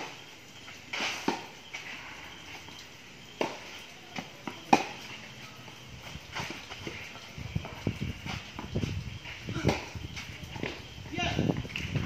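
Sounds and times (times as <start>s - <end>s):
tennis ball hit and bouncing: 0.9s - 1.9s, 3.3s - 5.4s, 6.3s - 10.8s.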